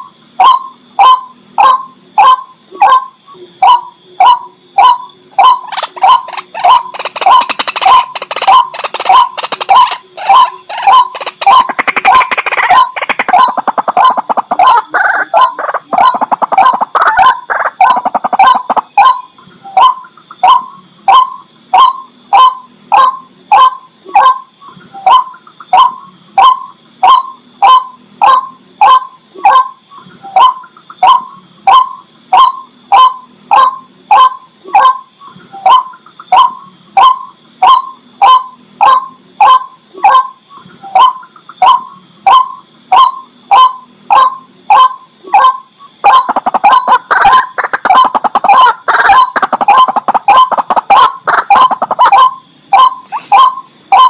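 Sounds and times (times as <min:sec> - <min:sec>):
waterhen harsh calls: 0:00.4 - 0:19.2, 0:41.0 - 0:54.0.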